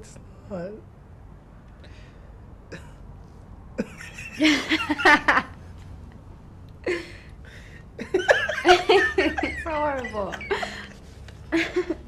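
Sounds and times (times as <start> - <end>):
people laughing: 3.8 - 5.6, 8.0 - 12.0.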